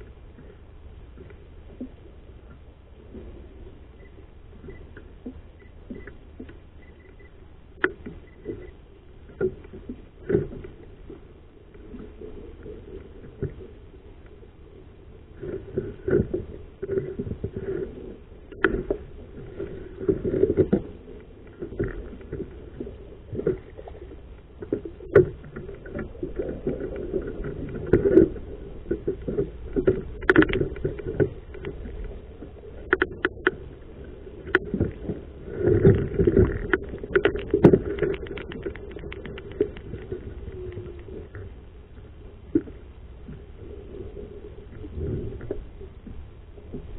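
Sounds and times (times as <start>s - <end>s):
water sloshing against hull: 0.0s - 46.9s
fishing gear knocking and scraping: 35.6s - 40.8s.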